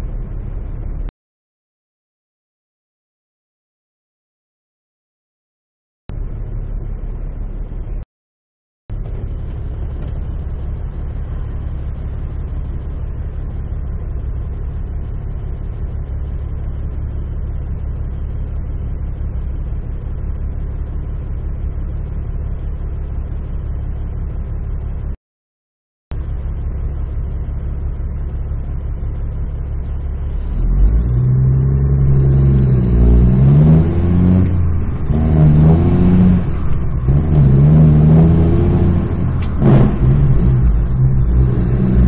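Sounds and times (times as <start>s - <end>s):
truck diesel engine idling: 8.9s - 25.2s, 26.1s - 33.5s.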